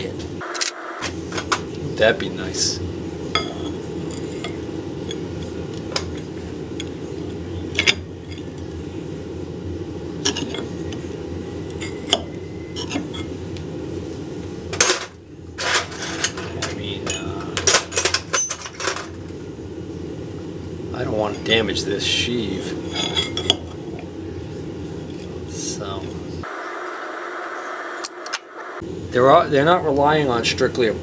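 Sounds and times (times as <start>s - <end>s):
steady low hum: 0.0s - 31.0s.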